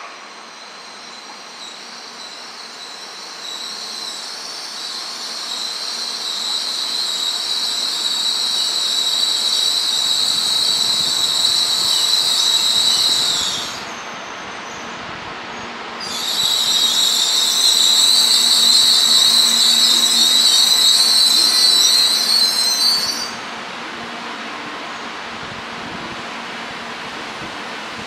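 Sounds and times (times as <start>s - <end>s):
train high-pitched squeal: 0.0s - 23.6s
train rumble: 8.5s - 28.0s.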